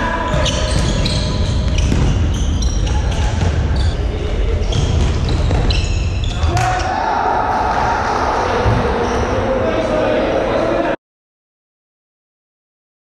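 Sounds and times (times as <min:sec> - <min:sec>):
shoes squeaking on wooden floor: 0:00.2 - 0:06.5.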